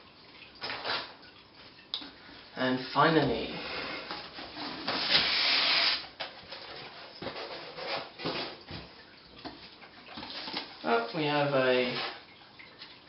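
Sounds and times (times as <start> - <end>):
foam scraping inside cardboard box: 4.8 - 6.0.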